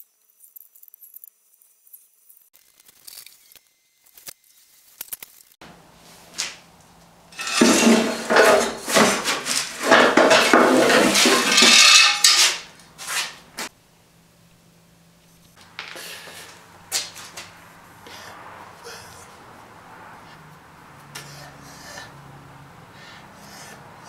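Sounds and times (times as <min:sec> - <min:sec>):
metal lines rattling on concrete: 0:07.3 - 0:13.4.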